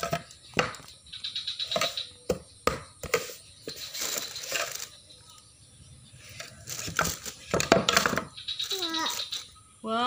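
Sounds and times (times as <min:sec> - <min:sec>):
plastic toys clacking: 0:06.3 - 0:09.5.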